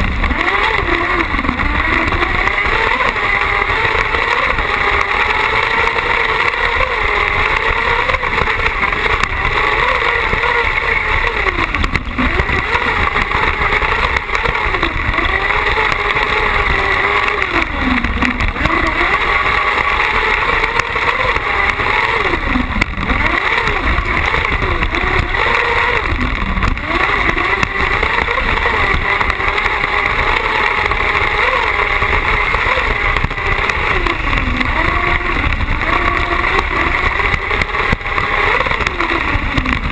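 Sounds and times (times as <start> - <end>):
buggy engine revving: 0.0 - 39.9
wind noise on microphone: 0.0 - 39.9.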